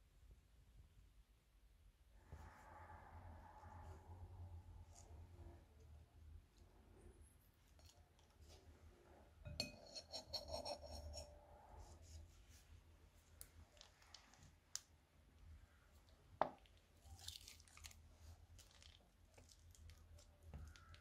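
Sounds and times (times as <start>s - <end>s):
slime squelching: 15.9s - 21.0s.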